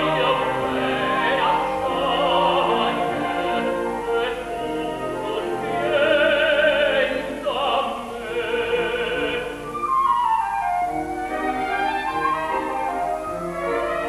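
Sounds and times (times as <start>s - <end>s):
operatic tenor singing: 0.0s - 9.9s
small orchestra playing: 0.0s - 14.0s.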